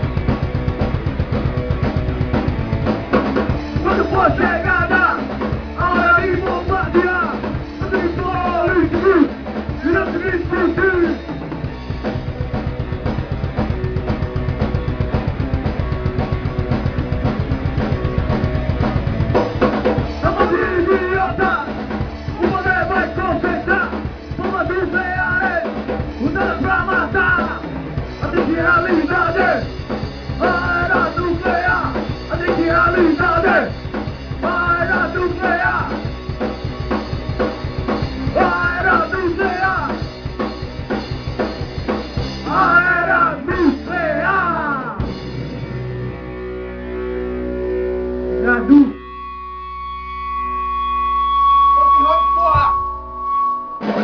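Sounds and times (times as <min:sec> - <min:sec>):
electric guitar: 0:00.0 - 0:54.0
punk rock band playing: 0:00.0 - 0:54.0
lead vocal singing: 0:20.2 - 0:29.7, 0:30.4 - 0:33.8, 0:34.4 - 0:36.0, 0:38.3 - 0:40.0, 0:42.4 - 0:45.1.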